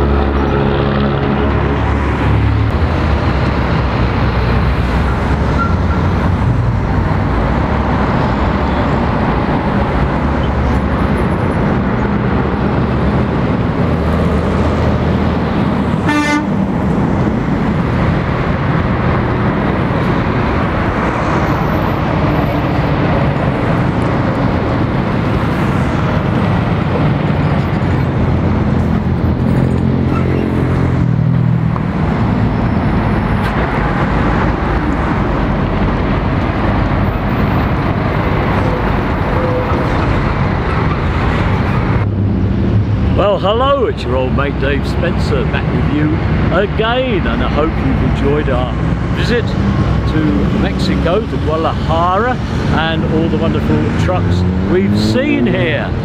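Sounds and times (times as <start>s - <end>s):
heavy truck engine passing: 0.0s - 56.0s
traffic passing: 0.0s - 56.0s
vehicle horn toot: 16.0s - 16.6s.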